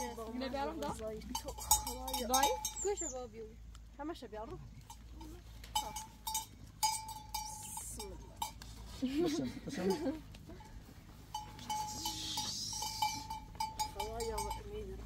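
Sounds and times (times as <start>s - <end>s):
goat bells clinking: 0.0s - 15.0s
goat bleating: 11.5s - 13.4s.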